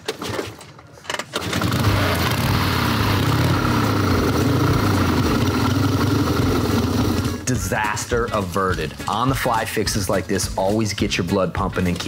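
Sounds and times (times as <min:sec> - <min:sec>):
motorcycle engine running: 0:01.6 - 0:07.4.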